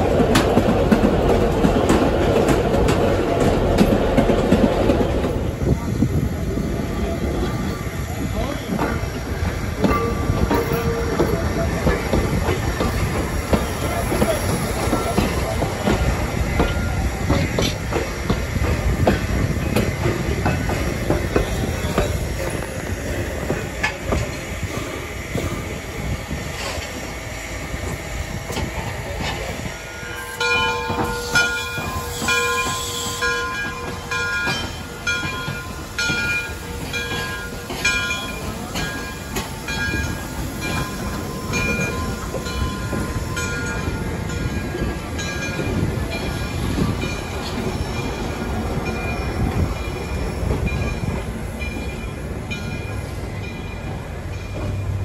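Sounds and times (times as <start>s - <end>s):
rail car rumbling past: 0.0s - 55.0s
train wheel clicks: 8.7s - 25.5s
locomotive bell ringing: 8.9s - 18.2s, 29.2s - 55.0s.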